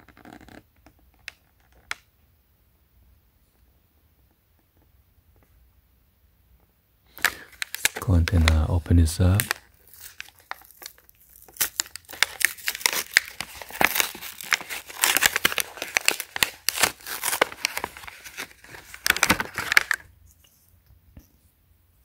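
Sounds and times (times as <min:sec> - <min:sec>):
plastic blister pack crinkling: 0:07.1 - 0:20.2.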